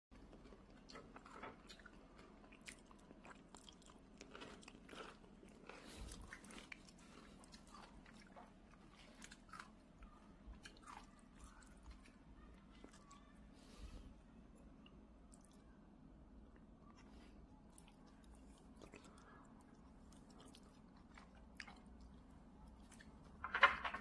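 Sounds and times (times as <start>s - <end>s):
cat chewing lettuce: 0.2s - 13.0s.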